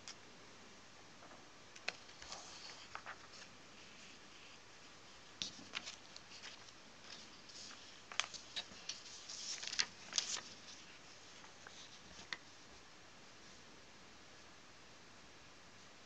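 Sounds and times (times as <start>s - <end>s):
paper rustling: 1.8s - 12.6s.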